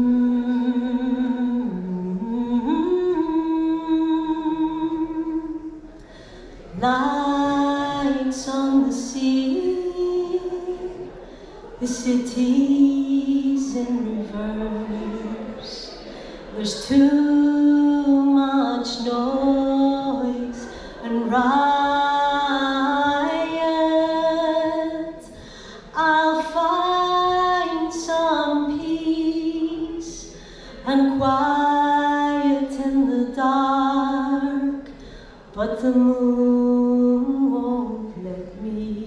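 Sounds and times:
woman singing unaccompanied: 0.0 - 6.0, 6.6 - 39.0
singer breathing: 6.0 - 6.7, 11.1 - 11.8, 15.9 - 16.6, 20.6 - 21.0, 25.3 - 25.9, 30.2 - 30.9, 34.9 - 35.5.

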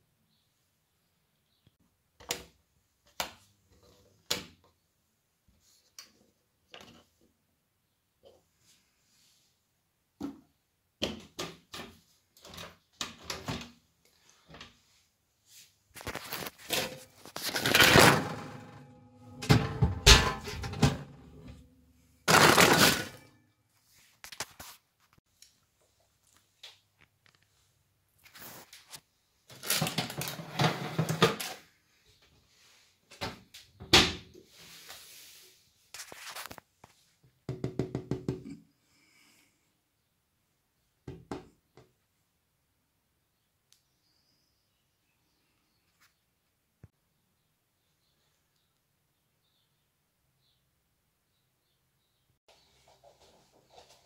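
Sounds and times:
baking tray scraping: 16.0 - 21.6, 30.1 - 31.6
oven door shutting with a bang: 19.3 - 21.1.

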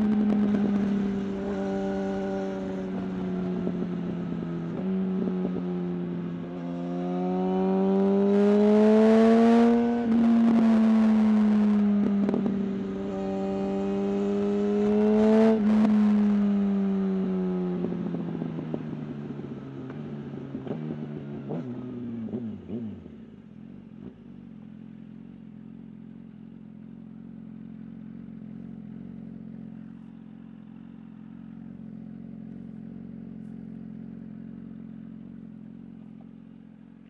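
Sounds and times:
motorcycle engine slowing to idle: 0.0 - 6.4, 23.1 - 37.0.

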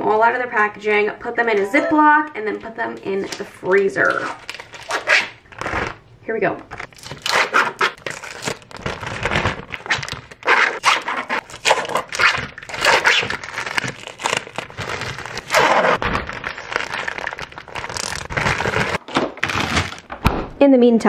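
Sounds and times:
plastic wrappers crinkling and tearing: 3.1 - 6.0, 6.7 - 20.1
plastic bag rustling: 3.2 - 6.0, 6.7 - 20.1.

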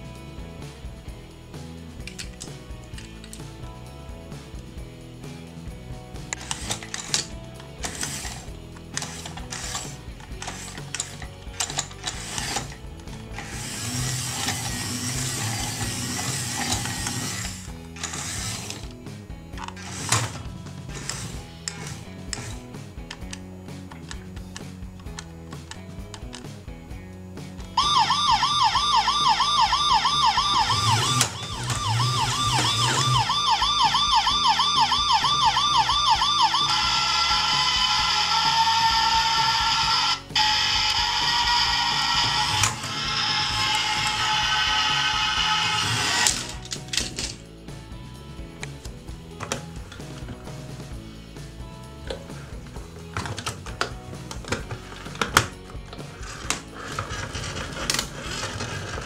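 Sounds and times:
background music: 0.0 - 59.0
toy car gears whirring: 6.3 - 19.0, 19.6 - 23.4, 27.8 - 47.4, 53.0 - 59.0
toy police siren warbling: 27.8 - 46.6.

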